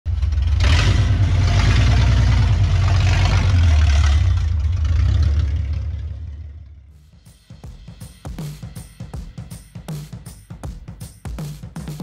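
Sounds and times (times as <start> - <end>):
engine exhaust rumble accelerating: 0.1 - 7.1.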